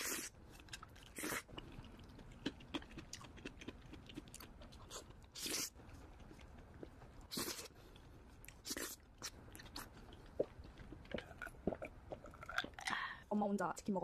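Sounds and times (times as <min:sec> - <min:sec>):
wet chewing with mouth clicks: 0:00.0 - 0:13.1
slurping: 0:07.2 - 0:13.0.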